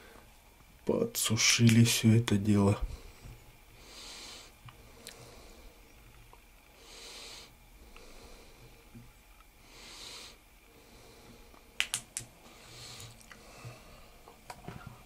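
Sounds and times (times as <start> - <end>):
soft hiss: 0.0 - 15.0
person breathing close: 2.8 - 5.8, 6.8 - 8.9, 9.6 - 11.7, 12.4 - 15.0
sharp clicks: 11.8 - 12.3.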